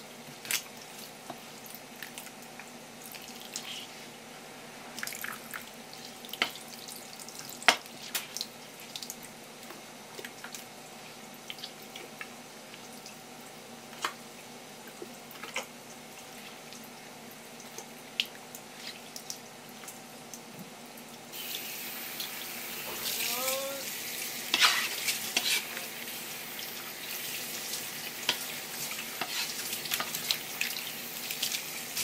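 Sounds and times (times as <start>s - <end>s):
tap water running: 21.3s - 32.0s.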